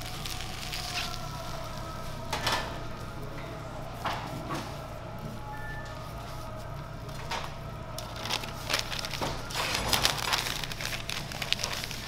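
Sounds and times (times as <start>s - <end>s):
paper wrapping crinkling: 0.0s - 3.1s, 5.8s - 12.0s
flatbread crackling: 0.0s - 4.1s, 4.7s - 12.0s
steady low hum: 0.0s - 12.0s.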